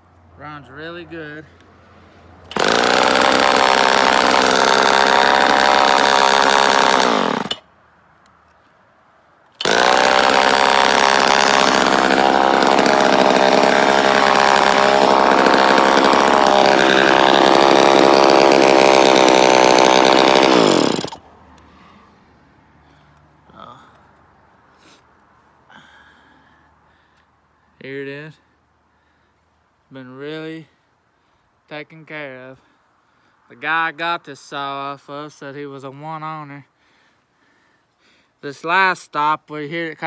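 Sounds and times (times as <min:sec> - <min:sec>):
chainsaw running: 0:02.4 - 0:07.7, 0:09.6 - 0:21.2.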